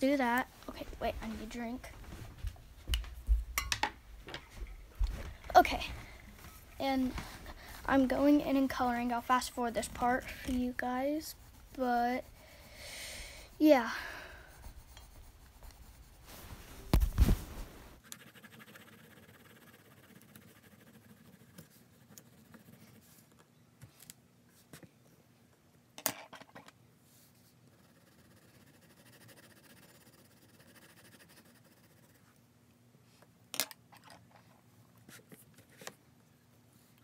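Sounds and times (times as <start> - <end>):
colored pencils on paper: 0.0 - 1.9, 5.2 - 12.8, 13.4 - 16.5, 18.0 - 23.4, 27.7 - 32.3.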